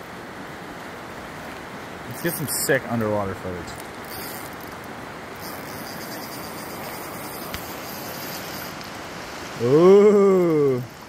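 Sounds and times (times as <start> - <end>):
fast river water rushing: 0.0 - 11.0
man's drawn-out ooh: 9.6 - 10.9.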